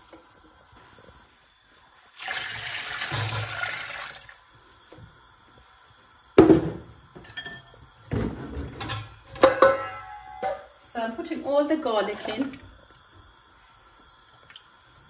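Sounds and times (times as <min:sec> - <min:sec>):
water pouring into a pot: 0:02.1 - 0:05.4, 0:11.7 - 0:15.0.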